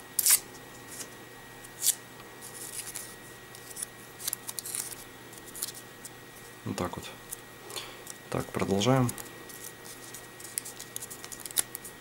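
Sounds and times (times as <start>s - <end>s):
paper crackling and rustling: 1.8s - 5.8s, 8.4s - 12.0s.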